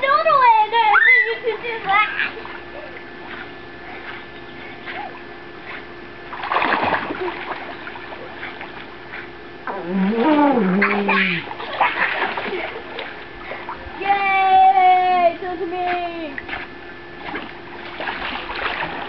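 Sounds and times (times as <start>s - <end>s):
pool water splashing: 0.0s - 19.0s
wavering voice: 9.7s - 11.5s.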